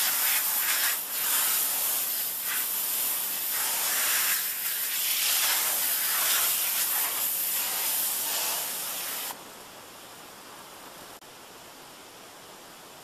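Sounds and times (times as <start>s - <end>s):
pressure washer jet hissing: 0.0s - 9.4s.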